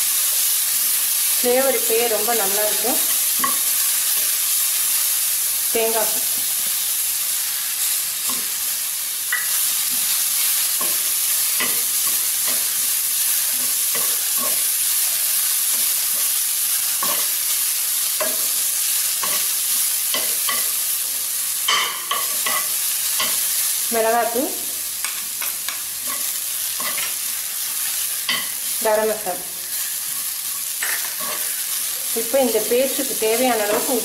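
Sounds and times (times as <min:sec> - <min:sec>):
food sizzling in oil: 0:00.0 - 0:34.0
stirring scraping against pan: 0:25.0 - 0:28.6.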